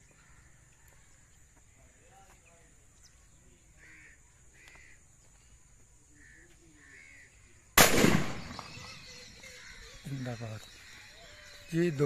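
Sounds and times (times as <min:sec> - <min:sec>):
faint bird calls: 0:00.0 - 0:12.0
shotgun shot: 0:07.8 - 0:08.9.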